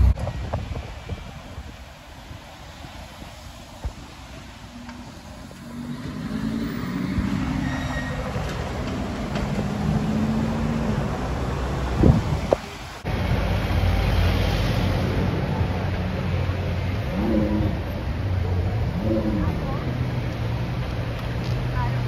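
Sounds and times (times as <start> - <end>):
taxi engine rumble passing: 2.2 - 22.0.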